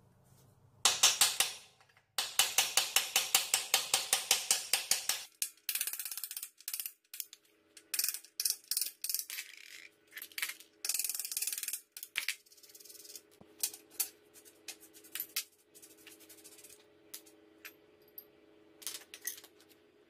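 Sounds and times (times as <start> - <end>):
hammer tapping metal: 0.8 - 5.3
metal tools clinking and scraping: 17.2 - 19.7.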